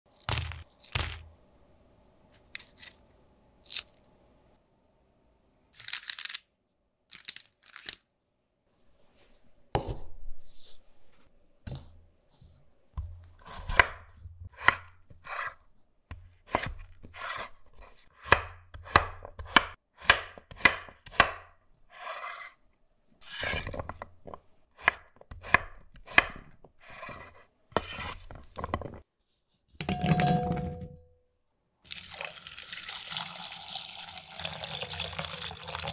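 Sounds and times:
pieces clattering into bowl: 0.1 - 1.3
knife chopping on wooden board: 13.0 - 22.4, 24.8 - 28.2.

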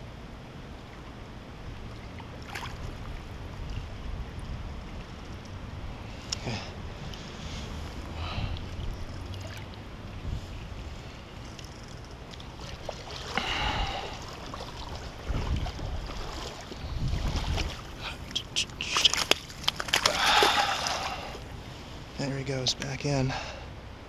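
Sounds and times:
wind rumble on microphone: 0.0 - 19.0
fish thrashing and splashing: 11.6 - 21.5.

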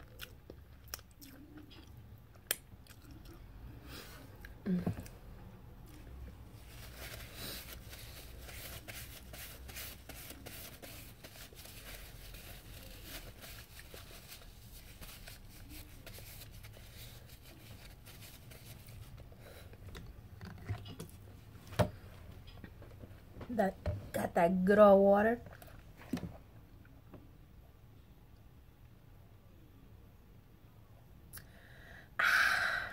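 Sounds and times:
paper towel tearing and crumpling: 6.6 - 19.2.

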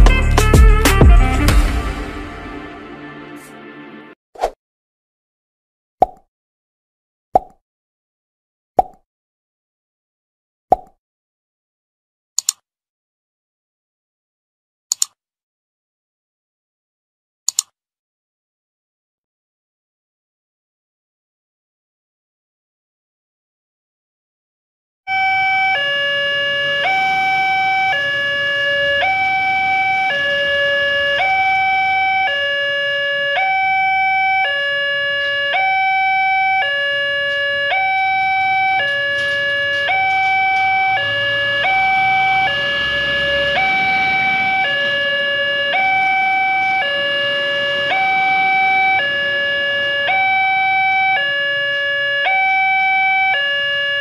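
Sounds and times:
two-tone level crossing alarm: 25.1 - 54.0.

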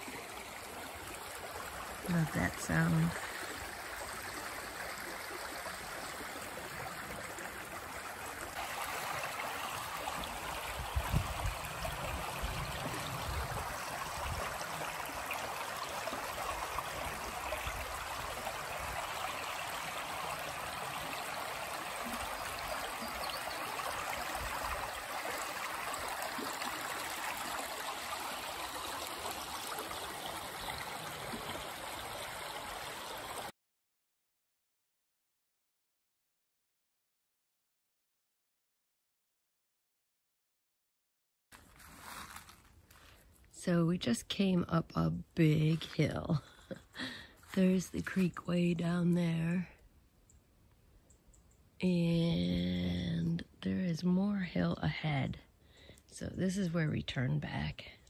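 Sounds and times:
creek babbling over stones: 0.0 - 33.5.

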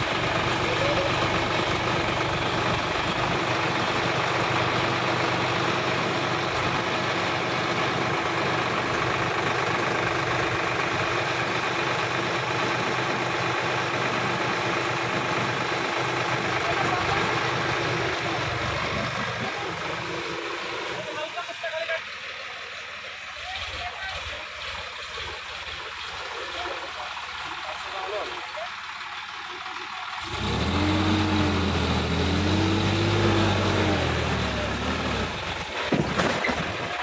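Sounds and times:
tractor diesel engine running: 0.0 - 37.0.

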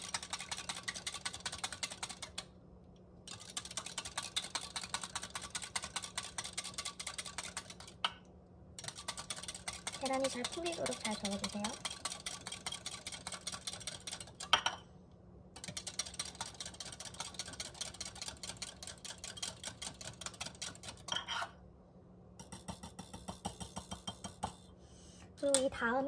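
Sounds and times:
whisk clicking against glass: 22.4 - 24.6.

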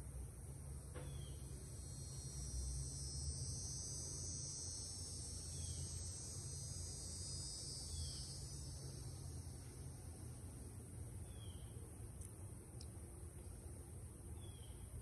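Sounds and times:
low hum: 0.0 - 15.0
high-pitched insect chirring: 1.0 - 11.6.

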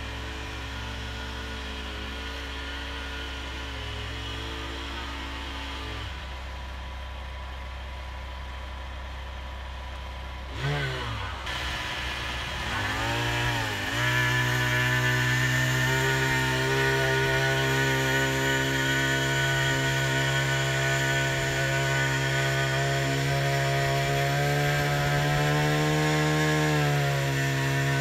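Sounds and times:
small gas engine revving: 0.0 - 6.8, 10.0 - 28.0
low steady engine hum: 0.0 - 16.2.

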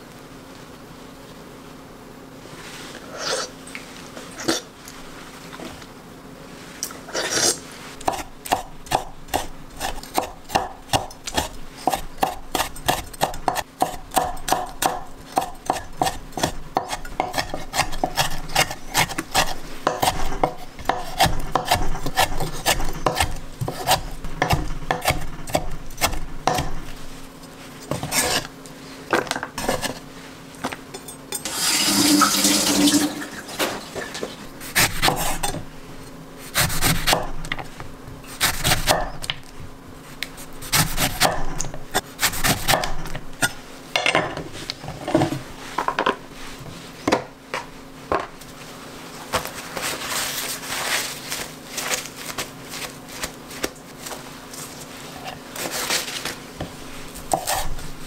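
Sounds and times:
knife chopping on wooden board: 8.0 - 26.9, 34.7 - 35.6, 36.5 - 37.5, 38.4 - 39.3, 40.6 - 43.6
tap water running into sink: 31.5 - 33.3.

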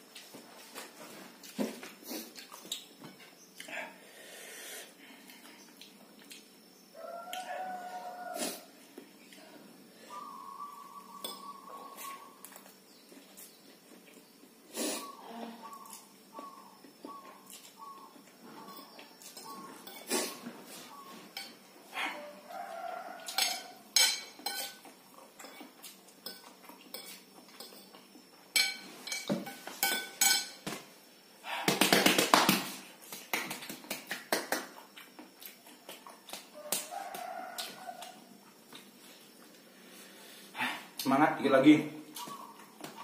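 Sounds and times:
cutlery clinking on ceramic plate: 23.2 - 30.6.

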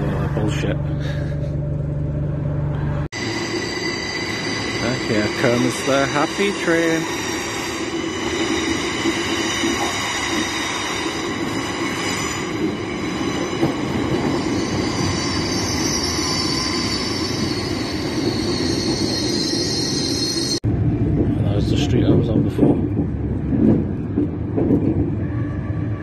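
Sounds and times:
train coaches rumbling: 0.0 - 26.0
wheels and brakes squealing: 3.2 - 20.6.

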